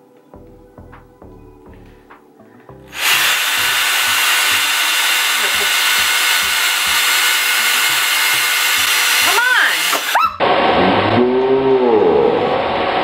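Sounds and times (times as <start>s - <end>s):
cordless drill boring through metal can: 2.9s - 10.2s.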